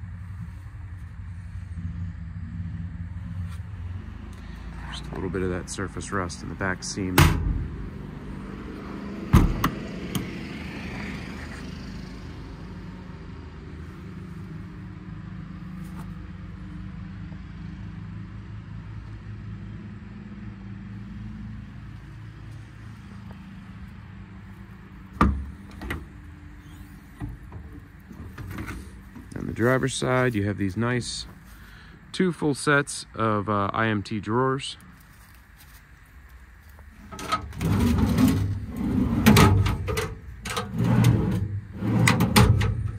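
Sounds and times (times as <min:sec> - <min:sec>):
steady low hum: 0:00.0 - 0:10.3
metal doors clunking open: 0:06.9 - 0:07.9, 0:09.2 - 0:10.3, 0:37.0 - 0:42.9
metal doors slamming: 0:07.0 - 0:07.9, 0:09.2 - 0:10.2, 0:37.1 - 0:42.9.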